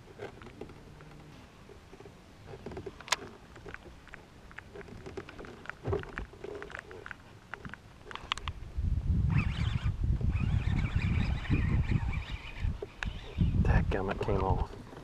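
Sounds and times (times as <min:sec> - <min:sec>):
water lapping against boat hull: 0:00.0 - 0:08.3
small ticks and knocks: 0:00.0 - 0:08.6, 0:14.1 - 0:15.0.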